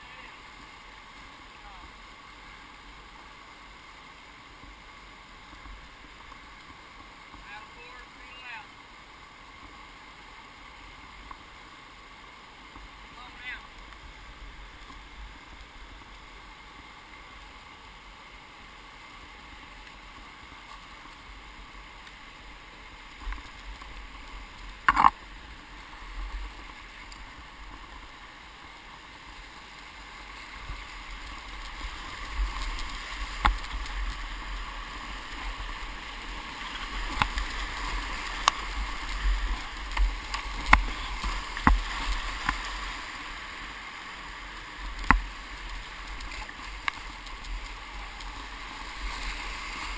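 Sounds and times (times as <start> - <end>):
whitewater rushing: 0.0 - 49.9
paddle knocks and splashes: 40.0 - 42.6.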